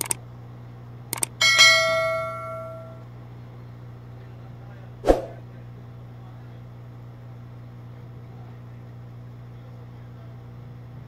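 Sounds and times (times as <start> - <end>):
sharp ringing click: 1.1 - 3.0.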